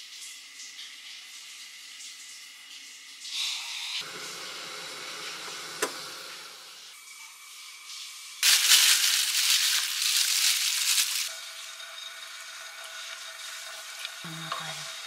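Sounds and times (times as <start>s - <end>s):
gas burner hissing: 3.3s - 7.0s.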